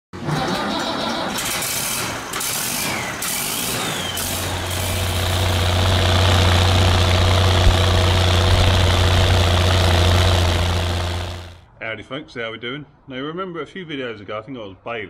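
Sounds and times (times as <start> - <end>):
tractor diesel engine running: 4.0 - 11.6.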